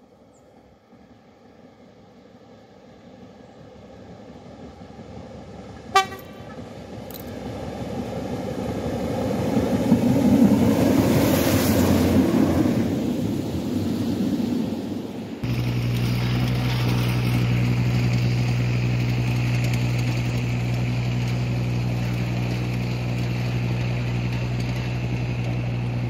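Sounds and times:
diesel locomotive engines: 0.0 - 26.0
short sharp horn toot: 5.9 - 6.6.

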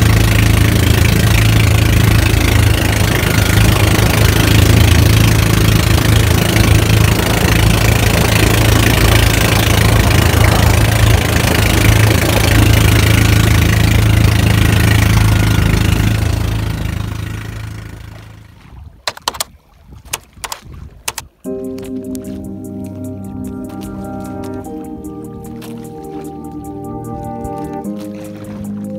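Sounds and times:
boat engine humming: 0.0 - 28.9
water noise: 0.0 - 28.9
wind: 0.0 - 28.9
sharp clicks: 19.1 - 19.5, 20.1 - 21.3.

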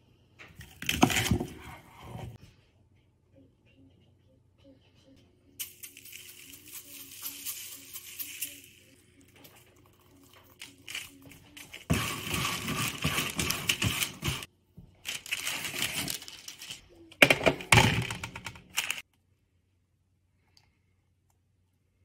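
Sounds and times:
food rustling on parchment paper: 10.6 - 16.8.

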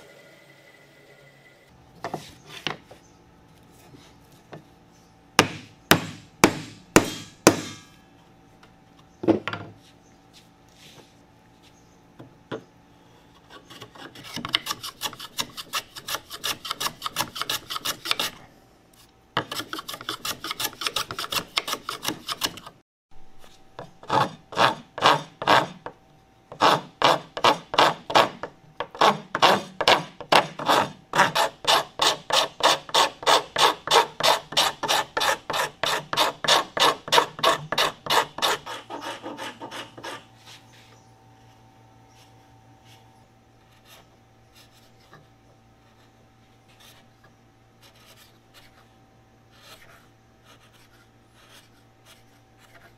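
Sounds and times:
file rasping wood: 13.5 - 18.4, 19.4 - 22.7, 24.0 - 25.8, 26.5 - 40.3
spokeshave scraping wood: 26.5 - 41.0.

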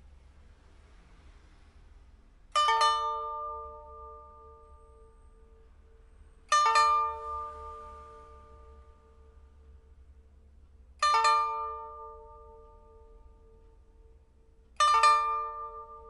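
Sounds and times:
plucked pipa chords: 2.5 - 16.0.

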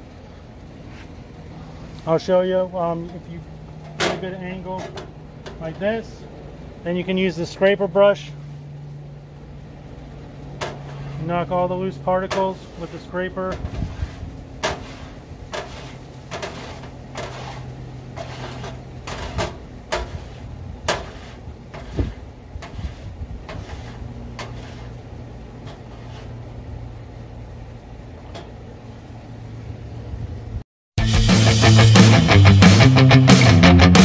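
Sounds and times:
metal scraper scraping pan: 10.6 - 26.4.

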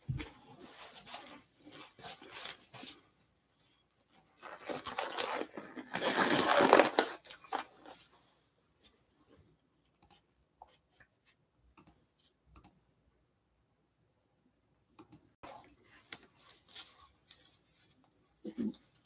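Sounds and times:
rustling handling noises: 0.0 - 9.6, 15.4 - 19.0.

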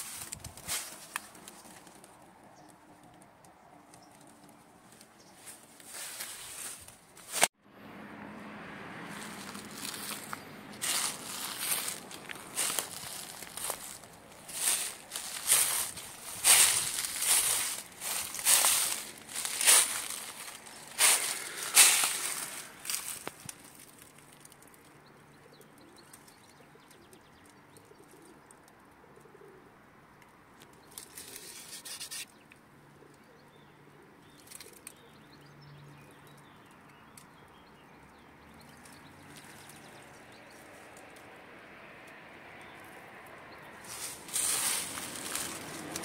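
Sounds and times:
loud rustling: 9.2 - 23.7, 43.8 - 46.0
dove cooing: 27.8 - 28.4, 29.0 - 29.8.

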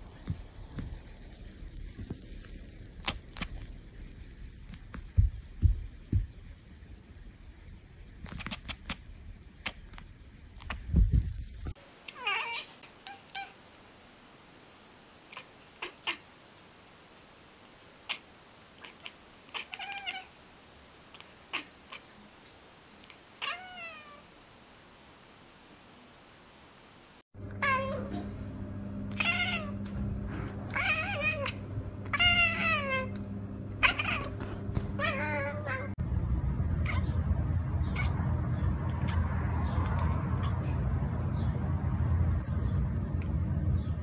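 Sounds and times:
steady low hum: 0.0 - 12.0, 27.4 - 44.0
cats chirping: 33.8 - 34.3, 36.8 - 40.8.

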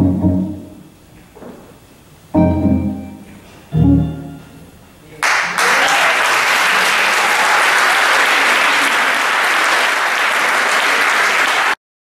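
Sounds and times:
audience applauding: 5.2 - 11.8.

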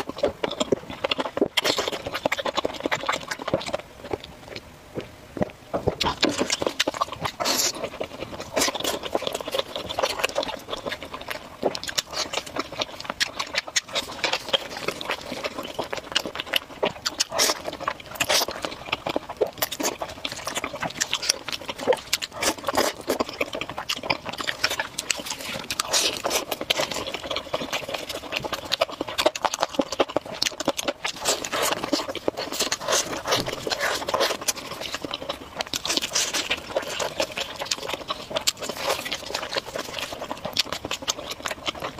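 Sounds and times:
wet chewing and slurping: 0.0 - 41.9.

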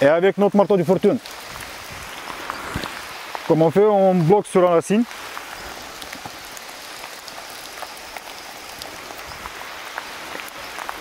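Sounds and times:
rain pattering on leaves: 0.0 - 11.0.

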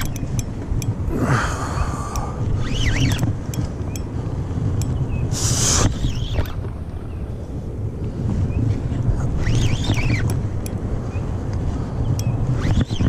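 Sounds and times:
wind buffeting microphone: 0.0 - 13.0
short high squeaks: 2.6 - 3.7, 9.4 - 10.4, 12.2 - 13.0.

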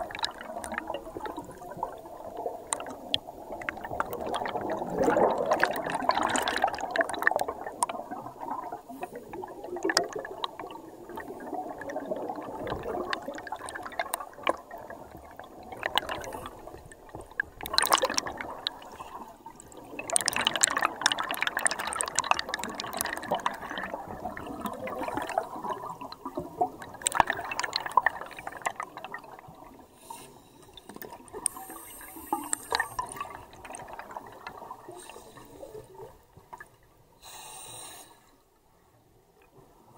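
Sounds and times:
air bubbles gurgling underwater: 0.0 - 29.8, 32.2 - 36.6.

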